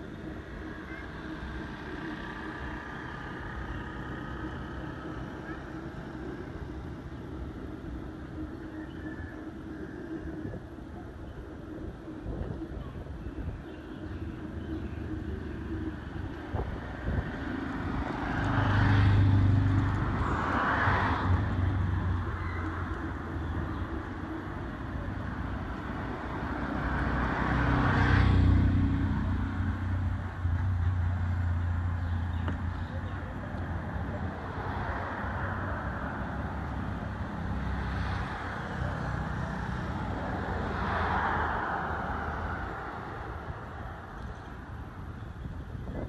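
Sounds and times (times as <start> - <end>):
vehicle engine humming: 0.0 - 46.0
vehicles passing by: 0.0 - 46.0.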